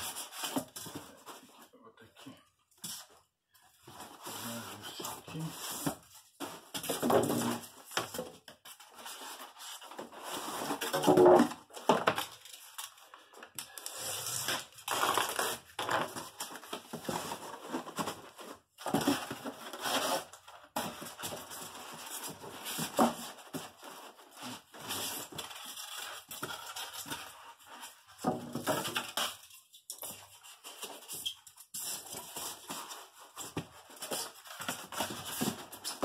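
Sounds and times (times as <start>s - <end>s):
styrofoam squeaking and crunching: 13.9s - 16.2s.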